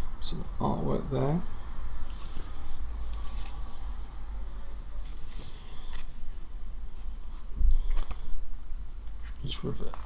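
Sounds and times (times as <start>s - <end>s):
paper pages rustling: 2.1s - 3.8s, 5.0s - 6.2s.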